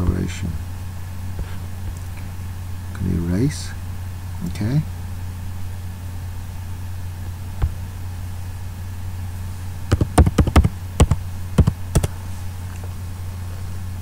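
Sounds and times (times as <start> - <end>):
steady low hum: 0.0 - 14.0
keyboard keystrokes typing: 9.9 - 12.1.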